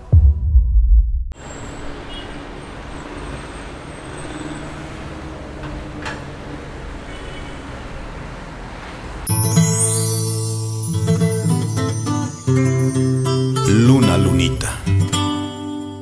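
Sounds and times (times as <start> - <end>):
distant city traffic rumble: 1.4 - 9.3.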